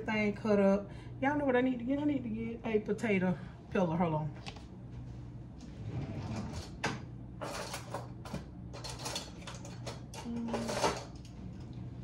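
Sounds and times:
utensils clattering in drawer: 7.4 - 8.1, 8.8 - 11.2.

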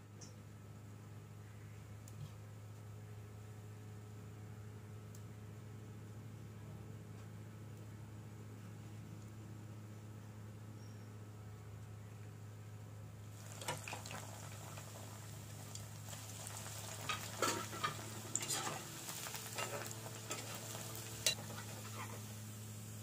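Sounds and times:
bread sizzling in hot oil: 13.3 - 23.0.

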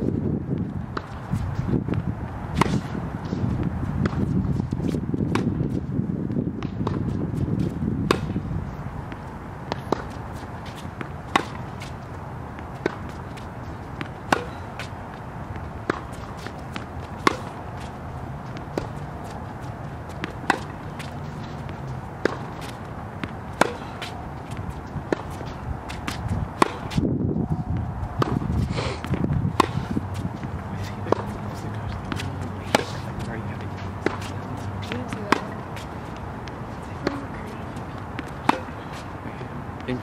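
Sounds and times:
tennis ball struck by racket: 0.9 - 5.8, 6.6 - 8.4, 9.1 - 27.1, 28.2 - 39.3.

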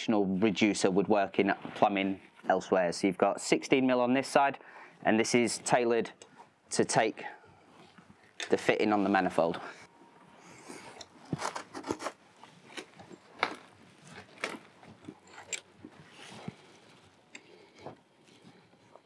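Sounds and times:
pipe fitting clicks and crunching: 10.9 - 15.7.

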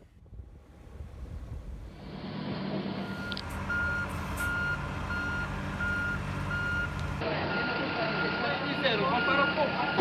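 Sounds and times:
engine humming: 0.0 - 10.0
electronic warning beeps: 3.0 - 10.0.

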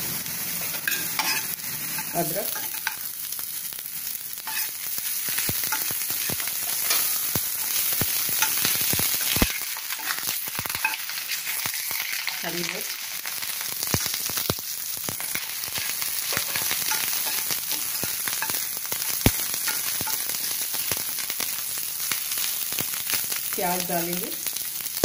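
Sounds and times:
garlic sizzling in hot oil: 0.0 - 25.0
spoon scraping pan: 0.6 - 3.1, 4.5 - 12.4, 15.2 - 20.6.

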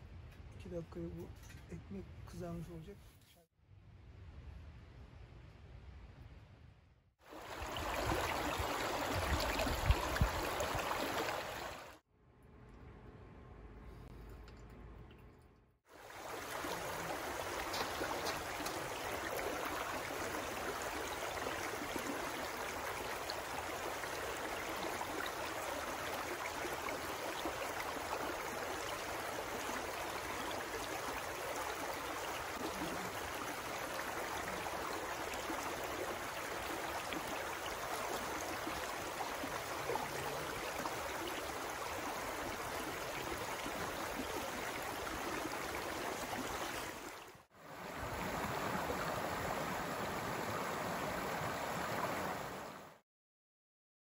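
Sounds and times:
creek flowing over stones: 7.2 - 12.0, 15.9 - 53.0.

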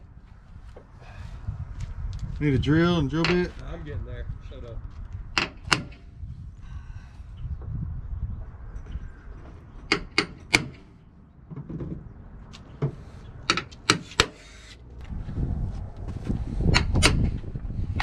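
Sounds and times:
hammer striking punch on metal: 5.4 - 6.0, 9.9 - 10.9.

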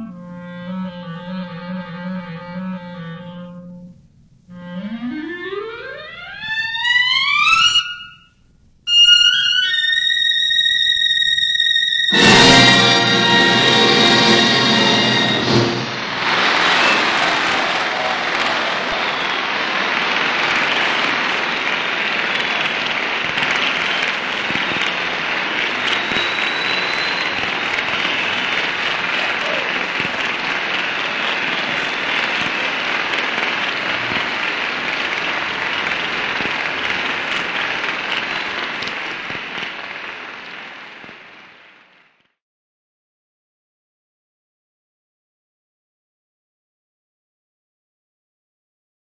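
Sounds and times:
audience applauding: 12.1 - 42.2.

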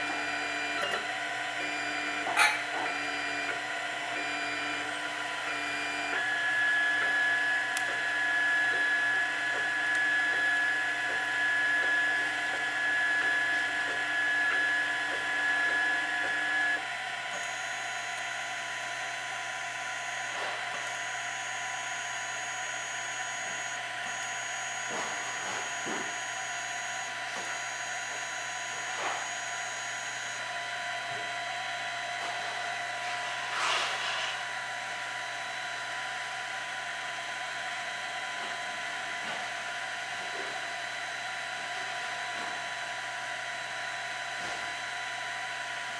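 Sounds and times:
thin high whine: 0.0 - 30.5
stepper motors whining: 0.0 - 31.8
mid-pitched whine: 0.0 - 45.4
cooling fan whirring: 0.0 - 45.9.

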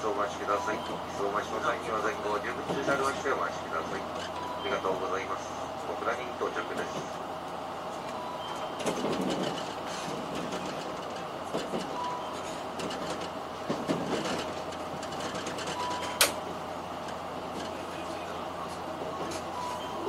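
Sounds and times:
train rolling noise: 0.0 - 20.0
wheel clicks over rail joints: 8.7 - 17.8
faint short beeps: 19.5 - 20.0.

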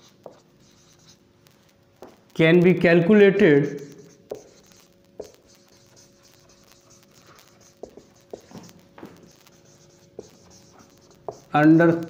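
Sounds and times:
marker tapping: 0.0 - 1.2, 4.0 - 12.0
marker writing on whiteboard: 0.0 - 1.2, 3.6 - 12.0
faint hum: 0.0 - 12.0.

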